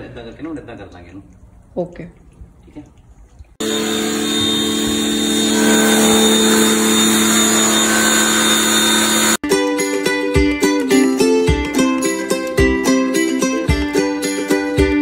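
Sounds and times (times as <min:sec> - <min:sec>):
pressure washer motor hum: 0:03.6 - 0:09.4.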